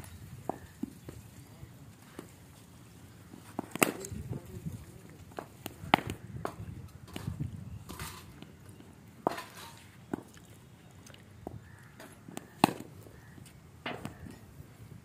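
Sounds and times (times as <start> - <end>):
cricket ball bouncing on turf: 5.4 - 6.6, 11.4 - 13.0
cricket ball hitting bat: 5.4 - 7.3, 12.3 - 13.0.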